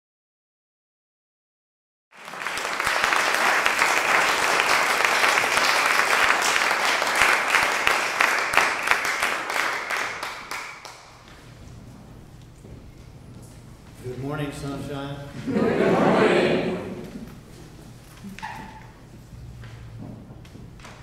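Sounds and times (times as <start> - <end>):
audience applauding: 2.1 - 11.3, 15.4 - 17.1.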